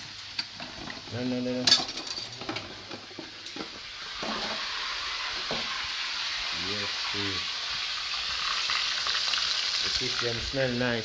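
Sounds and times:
fish frying in oil: 0:00.0 - 0:01.6, 0:03.3 - 0:11.0
metal utensils clinking: 0:01.6 - 0:04.6.

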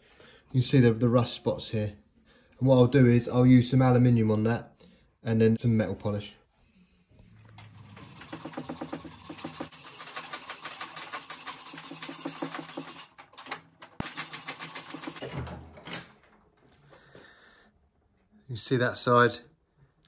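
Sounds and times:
scrubbing metal tube: 0:07.5 - 0:13.2.

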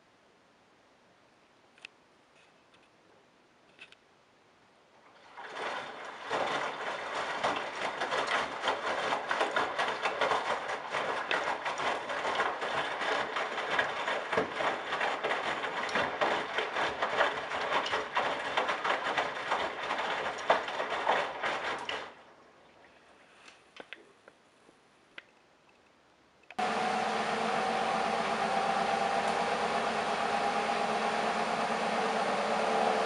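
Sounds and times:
laundry tumbling in washing machine: 0:05.0 - 0:22.2, 0:26.6 - 0:33.0.

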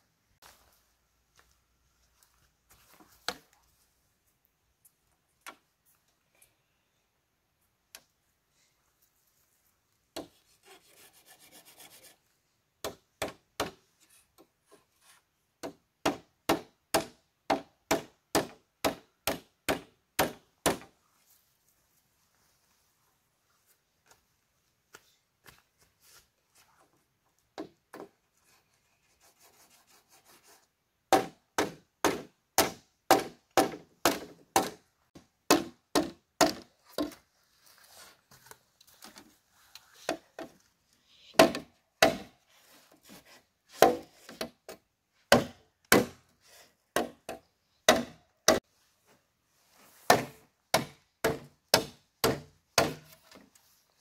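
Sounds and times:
sharp blows on bamboo: 0:15.6 - 0:20.9, 0:31.1 - 0:34.8, 0:35.5 - 0:36.7, 0:41.3 - 0:42.4, 0:43.7 - 0:44.5, 0:45.3 - 0:46.2, 0:47.0 - 0:48.6, 0:50.1 - 0:53.2.

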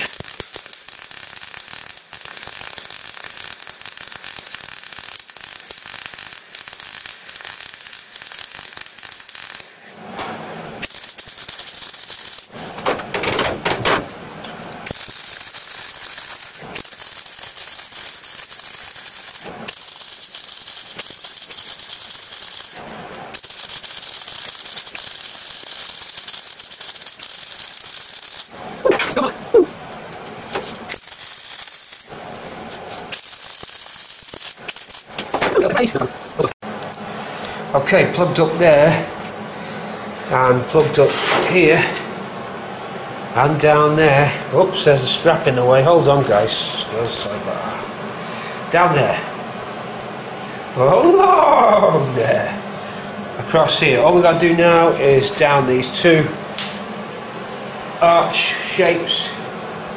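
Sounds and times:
welder arc crackling: 0:00.0 - 0:10.0, 0:10.7 - 0:37.0.

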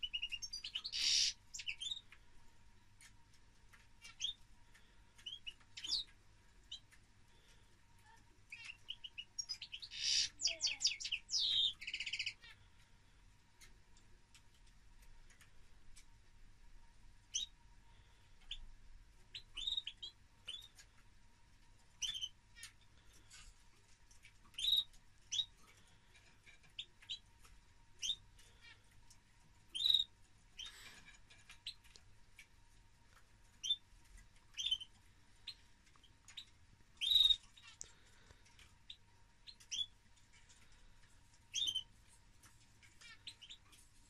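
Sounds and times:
finches chirping: 0:00.0 - 0:02.2, 0:03.0 - 0:12.9, 0:17.3 - 0:18.7, 0:19.3 - 0:20.9, 0:22.0 - 0:23.3, 0:24.2 - 0:32.5, 0:33.5 - 0:43.9.

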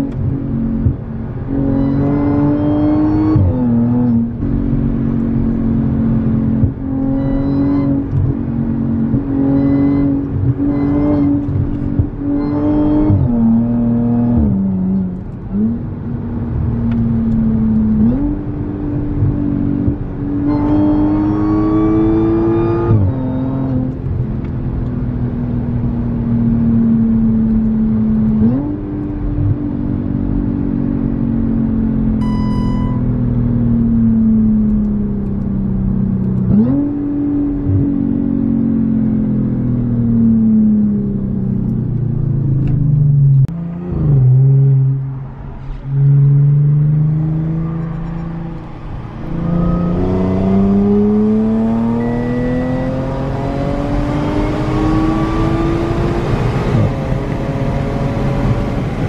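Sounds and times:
car engine revving: 0:00.0 - 0:59.0
short beep: 0:07.0 - 0:08.0, 0:09.6 - 0:11.4, 0:32.2 - 0:33.2.

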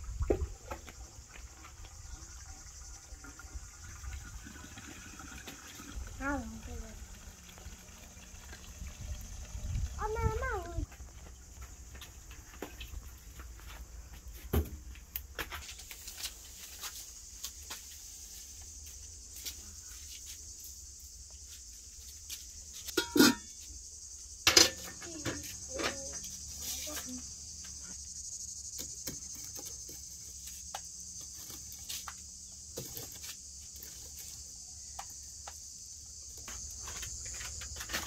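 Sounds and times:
insects chirring: 0:00.0 - 0:38.0
sharp metal clanks: 0:22.9 - 0:23.5.

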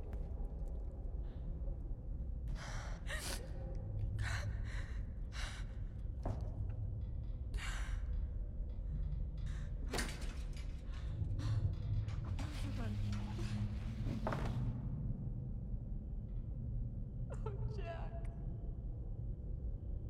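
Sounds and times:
woman breathing heavily with gasps: 0:02.5 - 0:06.0.

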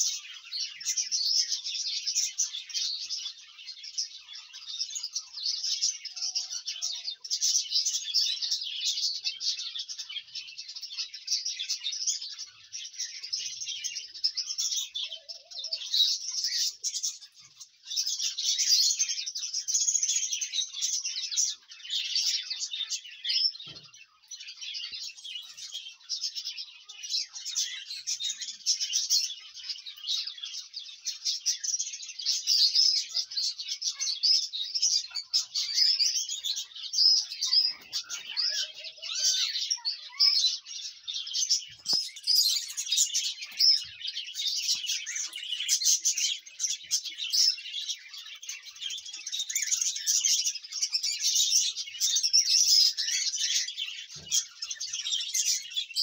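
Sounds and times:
small birds chirping: 0:00.0 - 0:56.0.

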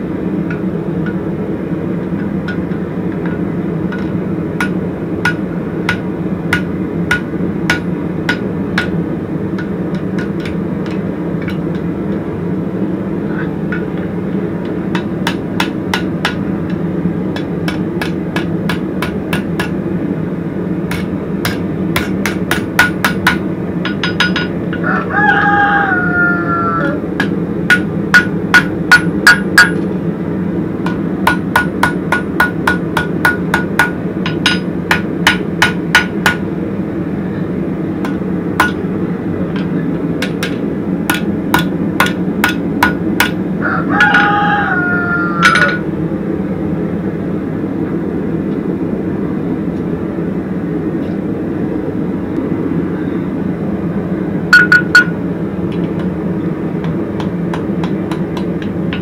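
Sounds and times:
steady low hum: 0:00.0 - 0:59.0
hammer ringing on anvil: 0:20.9 - 0:24.9, 0:27.2 - 0:29.8, 0:30.8 - 0:36.4, 0:38.0 - 0:38.8, 0:45.4 - 0:45.8, 0:54.6 - 0:55.2
rooster crowing: 0:24.8 - 0:27.1, 0:43.6 - 0:45.8.

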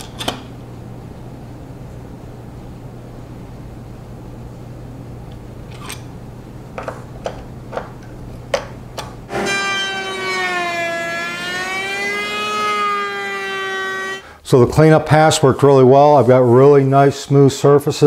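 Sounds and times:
low steady hum: 0:00.0 - 0:18.0
router table whining: 0:09.3 - 0:14.3.

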